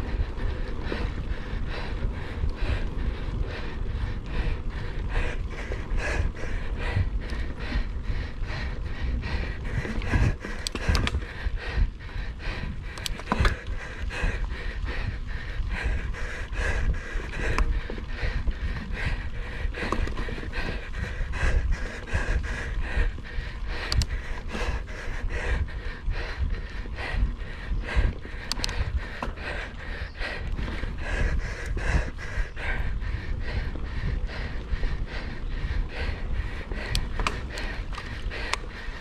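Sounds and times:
person breathing hard: 0.0s - 39.0s
wind and tyres rumbling: 0.0s - 39.0s
bike knocking and rattling: 12.6s - 26.4s, 27.0s - 38.9s.

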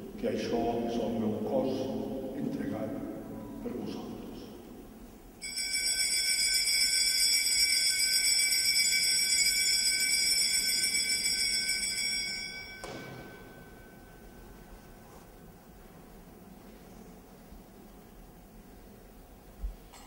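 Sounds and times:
altar bells jingling: 5.4s - 14.6s
soft thump: 12.8s - 13.4s.

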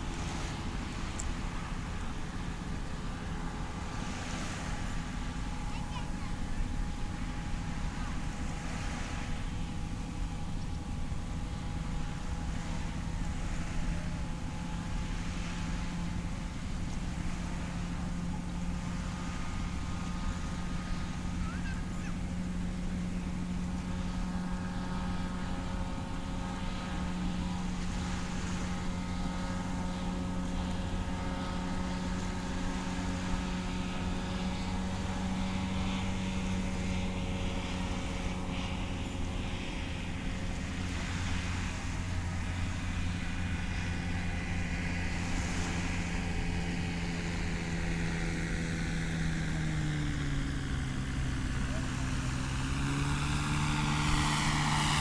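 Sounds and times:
distant light aircraft engine droning: 0.0s - 55.0s.

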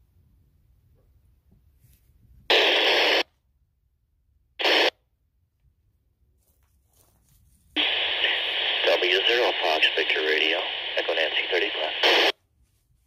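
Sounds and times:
radio static bursts: 2.5s - 3.2s, 4.6s - 4.9s, 7.8s - 12.4s.

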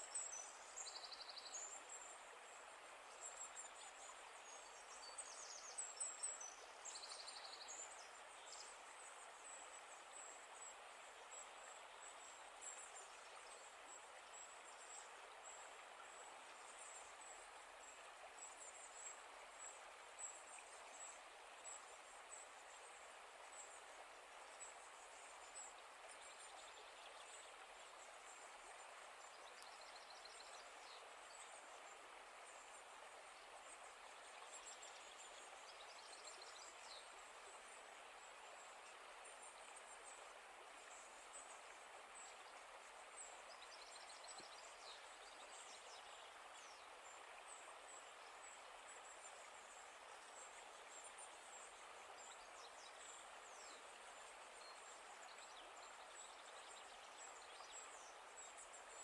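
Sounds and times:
steady outdoor hiss: 0.0s - 59.0s.

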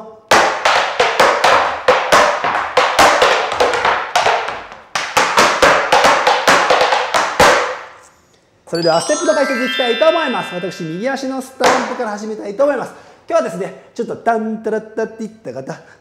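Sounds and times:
tap shoes on wooden board: 0.3s - 7.8s.

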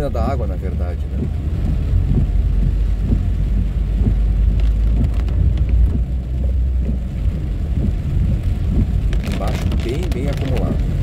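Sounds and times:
car road and engine rumble: 0.0s - 11.0s
rain tapping on windshield: 0.0s - 11.0s.

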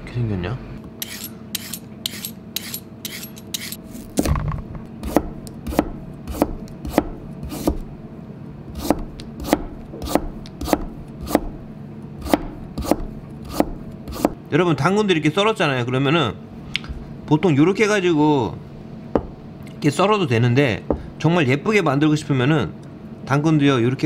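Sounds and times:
peeler scraping carrot: 1.0s - 4.1s, 5.0s - 7.8s, 8.7s - 11.4s, 12.2s - 14.4s.

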